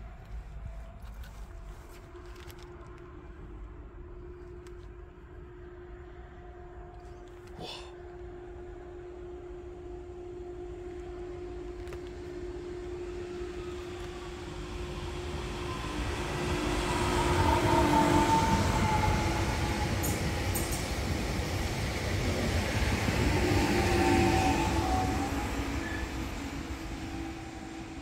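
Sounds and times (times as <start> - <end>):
train humming tone: 0.0 - 28.0
higher train tone: 2.8 - 28.0
train wheels rumbling on rails: 8.2 - 28.0.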